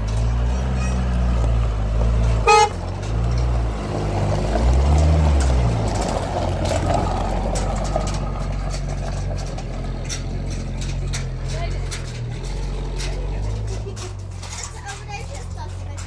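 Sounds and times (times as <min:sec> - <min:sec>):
pickup truck engine running: 0:00.0 - 0:16.0
short horn toot: 0:02.4 - 0:02.8.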